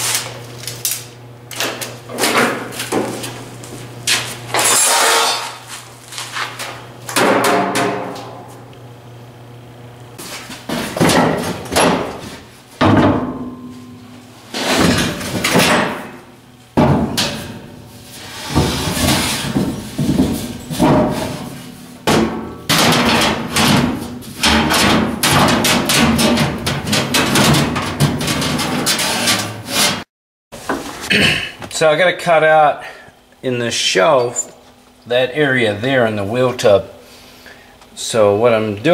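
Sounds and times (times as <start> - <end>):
metal clanks and knocks: 10.7 - 16.2, 18.5 - 30.0.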